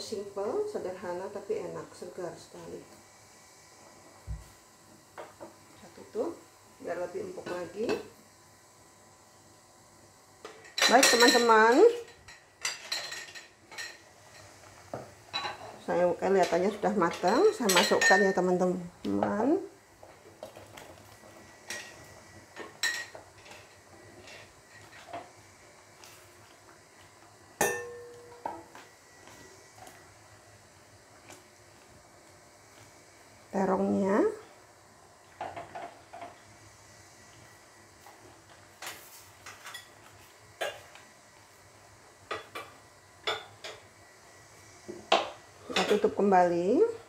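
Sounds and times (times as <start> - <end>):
clinks and knocks on steel pot: 27.6 - 28.6.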